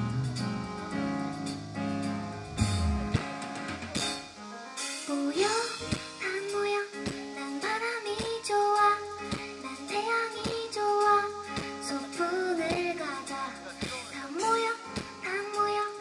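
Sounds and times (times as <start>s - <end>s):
bass: 0.0s - 4.4s, 7.1s - 16.0s
keyboard chords: 0.0s - 16.0s
drum hits: 2.6s - 4.2s
woman singing: 5.1s - 16.0s.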